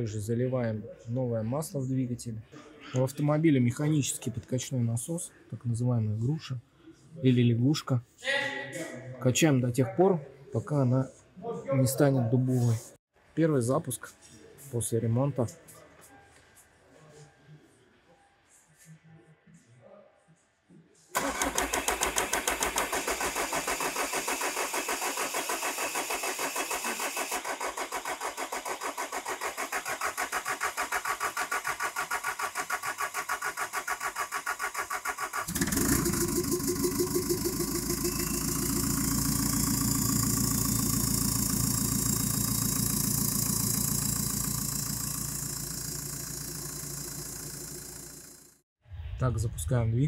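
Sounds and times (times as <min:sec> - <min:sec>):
diesel engine cranking: 0:21.2 - 0:48.5
diesel engine idling: 0:34.9 - 0:48.5.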